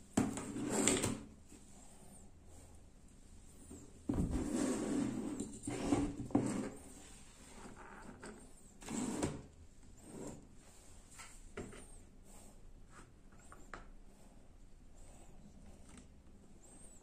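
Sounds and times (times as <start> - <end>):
speakers scraping on plastic mat: 3.7 - 10.4.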